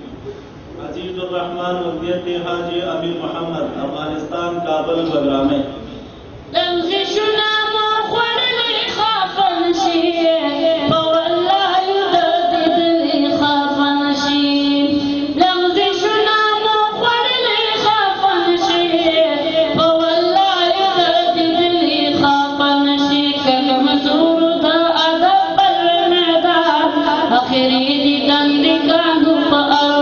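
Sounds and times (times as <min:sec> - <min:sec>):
high voice singing a chant: 0:06.6 - 0:30.0.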